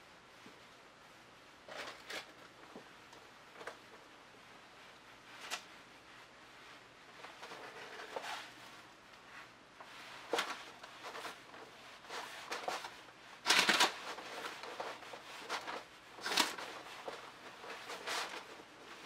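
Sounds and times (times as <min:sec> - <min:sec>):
paintbrush swishing on canvas: 0:02.5 - 0:13.4
plastic bag rustling: 0:06.8 - 0:19.0.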